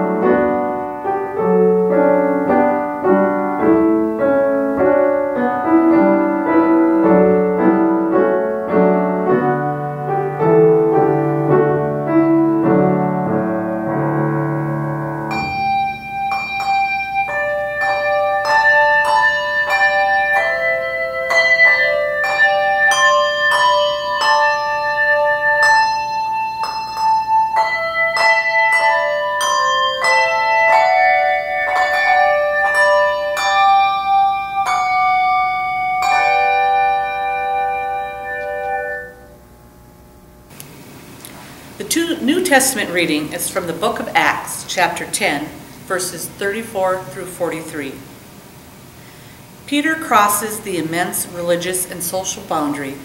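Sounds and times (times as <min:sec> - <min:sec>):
piano chords: 0:00.0 - 0:53.0
handbell choir playing a hymn: 0:15.3 - 0:39.2.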